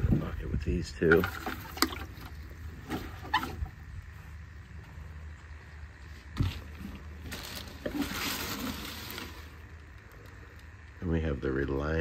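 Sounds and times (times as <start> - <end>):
plastic wrapping crinkling: 7.0 - 9.6.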